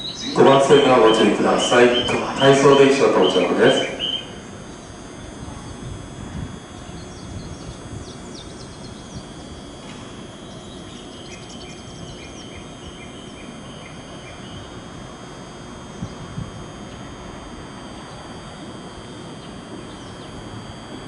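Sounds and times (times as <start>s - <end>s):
small birds chirping: 0.0s - 5.9s, 6.6s - 15.0s, 19.3s - 20.5s.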